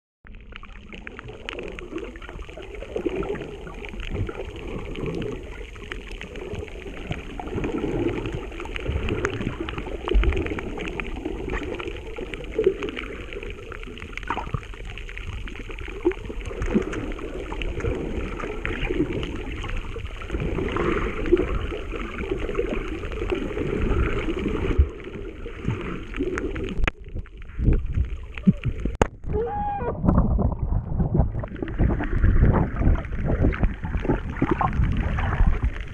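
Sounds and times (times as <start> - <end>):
crackling clicks: 0.3 - 20.4, 21.0 - 29.3
muffled underwater water wash: 0.3 - 35.9.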